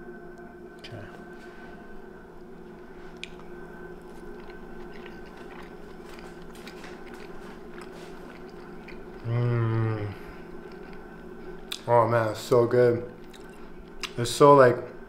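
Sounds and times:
person chewing food: 0:02.7 - 0:11.9, 0:13.1 - 0:14.2
person humming mmm: 0:08.9 - 0:10.8
mouth clicks and smacks: 0:11.7 - 0:11.9, 0:13.2 - 0:14.2.

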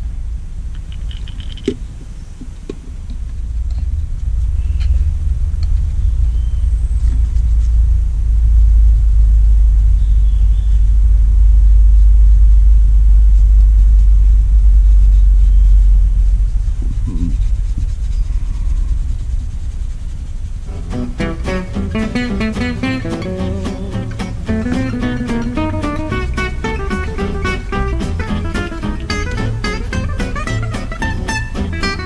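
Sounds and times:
low noisy rumble: 0:00.0 - 0:32.0
faint high chirps: 0:09.9 - 0:11.0.

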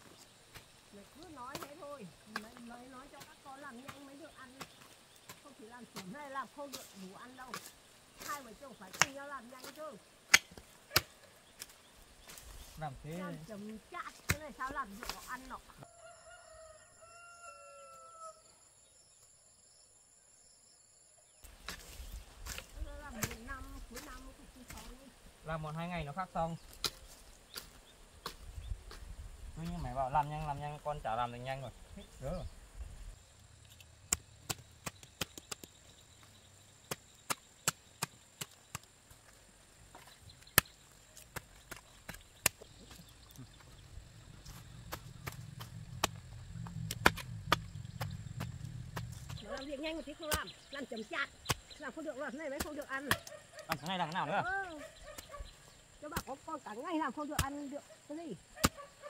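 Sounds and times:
hoe striking hard soil: 0:01.4 - 0:12.4, 0:21.5 - 0:25.0, 0:40.4 - 0:43.1, 0:44.4 - 0:50.6
rooster crowing: 0:15.8 - 0:18.6.

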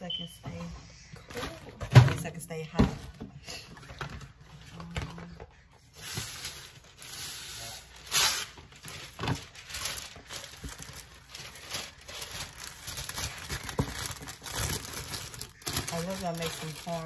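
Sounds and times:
plastic wrapping crinkling: 0:03.9 - 0:17.0.

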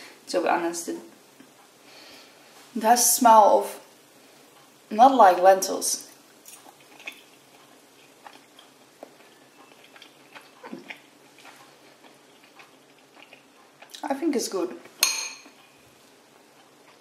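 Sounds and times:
person chewing: 0:06.1 - 0:14.0, 0:15.4 - 0:17.0.

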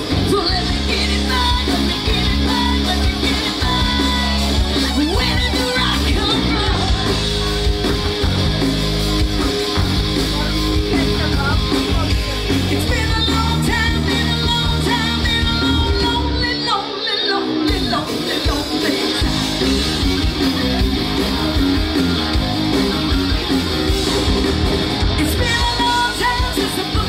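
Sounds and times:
woman singing: 0:00.0 - 0:07.4, 0:12.7 - 0:19.2, 0:25.2 - 0:27.0
bass guitar: 0:00.0 - 0:27.0
drums: 0:00.0 - 0:27.0
electric guitar: 0:00.0 - 0:27.0.

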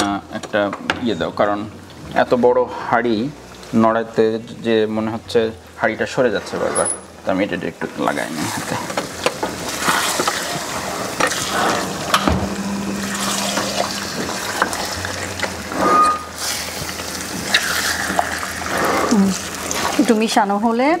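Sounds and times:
chicken sizzling in pan: 0:07.8 - 0:20.8
spatula scraping pan: 0:08.4 - 0:20.0.

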